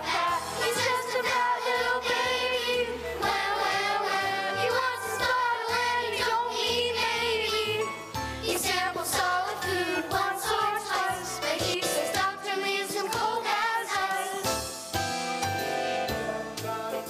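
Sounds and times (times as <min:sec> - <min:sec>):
children's choir singing: 0:00.0 - 0:14.7
instrumental accompaniment: 0:10.1 - 0:17.0.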